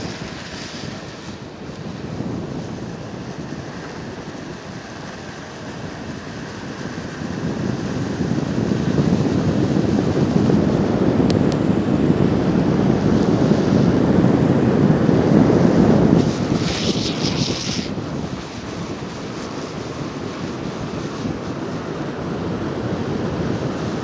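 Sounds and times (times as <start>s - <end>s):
longboard wheels rolling on asphalt: 0.0s - 24.0s
wheels sliding on asphalt: 0.0s - 24.0s
wind rushing over microphone: 0.0s - 24.0s.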